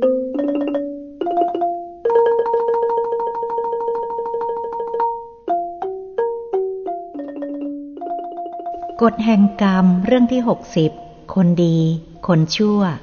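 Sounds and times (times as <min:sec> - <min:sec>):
instrumental music of ringing notes: 0:00.0 - 0:09.0.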